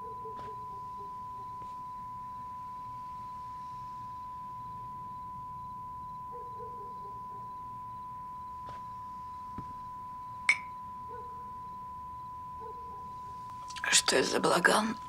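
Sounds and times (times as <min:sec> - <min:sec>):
television test card beep: 0:07.6 - 0:14.2.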